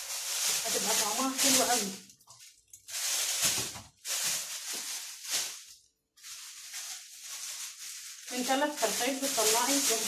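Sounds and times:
plastic bag crinkling: 0.0 - 10.0.

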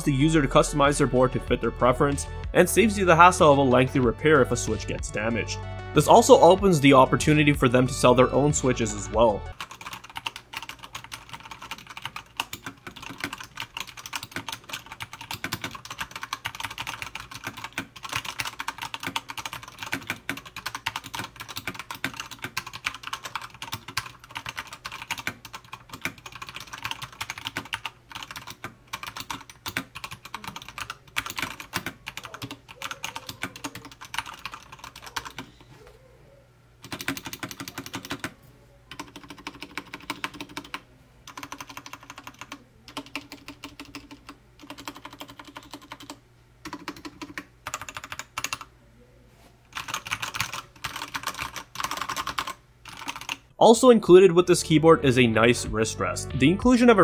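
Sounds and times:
mechanical keyboard typing: 9.5 - 35.5, 36.8 - 48.7, 49.7 - 53.4.

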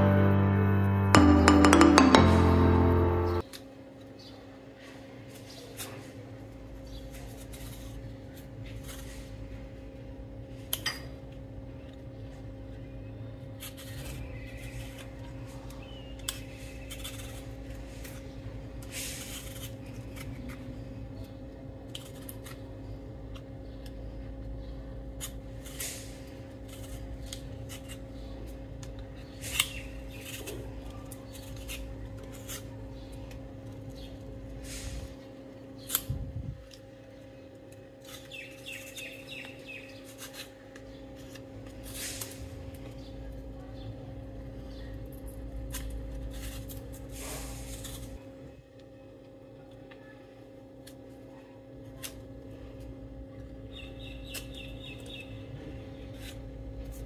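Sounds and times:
low electrical hum: 0.0 - 57.0
peeler scraping potato skin: 6.9 - 9.5, 13.5 - 21.0, 25.2 - 34.1, 38.0 - 42.6, 56.0 - 57.0.

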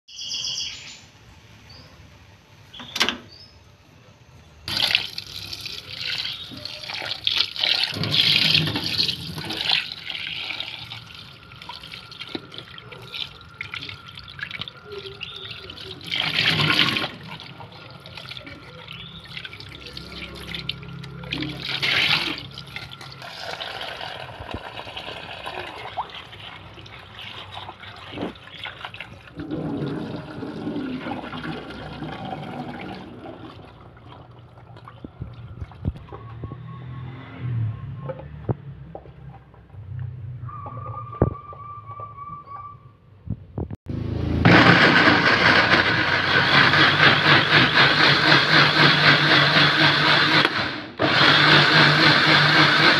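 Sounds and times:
tap water running into metal pot: 4.7 - 35.7
water splashing as hands rinse food: 4.7 - 36.0.

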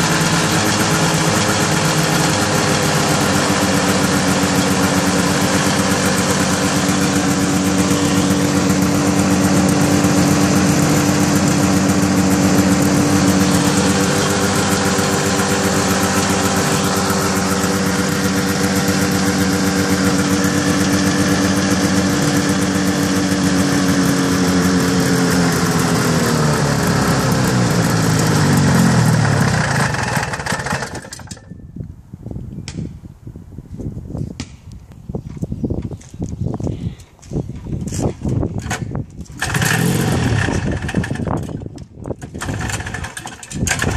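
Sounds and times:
snowmobile engine idling: 0.0 - 31.4.

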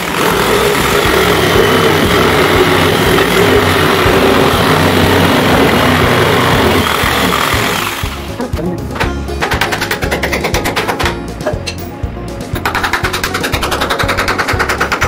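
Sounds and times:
jigsaw cutting wooden board: 0.0 - 8.4, 12.6 - 15.0.

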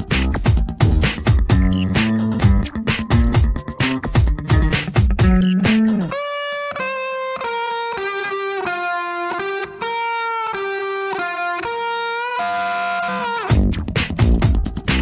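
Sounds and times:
drums and bass: 0.0 - 6.1, 13.5 - 15.0
distorted electric guitar melody: 0.0 - 15.0.

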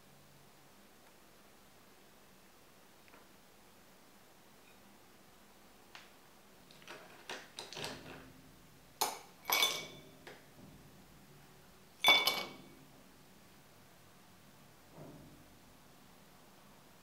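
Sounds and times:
ice cubes clinking in a glass: 9.5 - 10.0, 12.0 - 12.6.

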